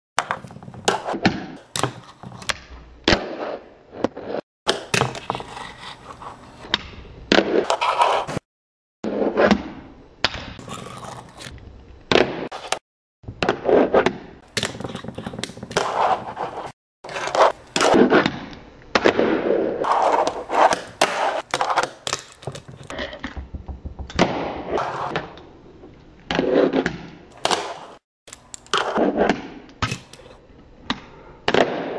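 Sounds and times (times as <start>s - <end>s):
fingerboard wheels rolling on concrete: 14.6s - 18.3s, 24.5s - 25.2s.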